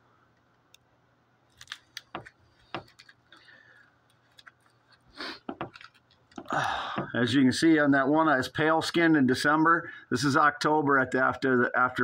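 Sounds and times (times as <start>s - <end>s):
plastic cards clicking: 1.5s - 3.5s.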